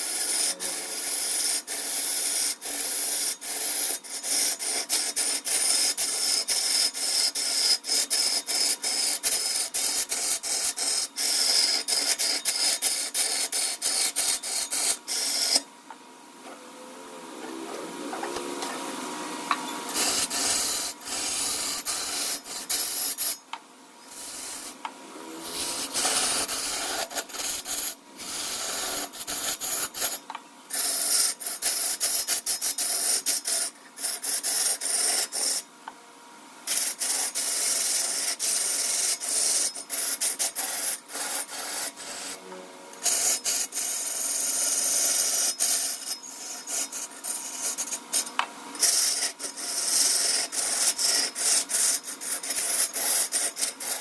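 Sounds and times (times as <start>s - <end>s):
tool rasping on spinning wood: 0.0s - 15.7s, 19.5s - 23.4s, 24.0s - 35.6s, 36.7s - 42.4s, 43.0s - 54.0s.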